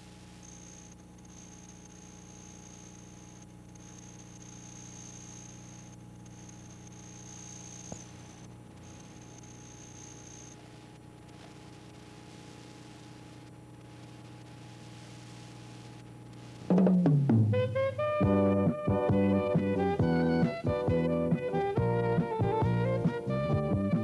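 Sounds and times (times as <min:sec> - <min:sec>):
thin high-pitched whine: 0:00.0 - 0:16.8
faint mains hum and hiss: 0:00.0 - 0:24.0.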